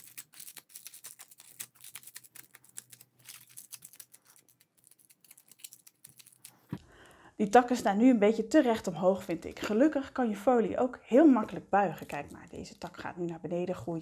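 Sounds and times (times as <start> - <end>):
aluminium foil crinkling: 0.0 - 6.7.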